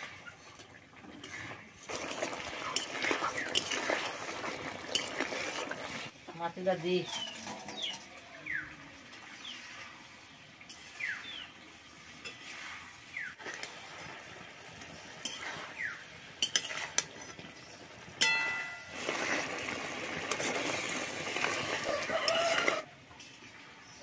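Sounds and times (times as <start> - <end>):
metal spatula scraping wok: 0.0 - 8.2, 12.0 - 23.4
ringing metallic clink: 18.2 - 18.9.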